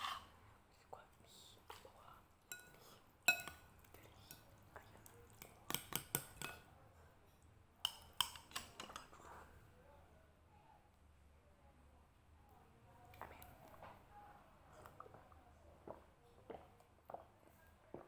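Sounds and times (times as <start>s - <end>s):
spoon clinking against bowls: 2.5s - 4.5s, 5.3s - 6.7s, 7.8s - 9.2s.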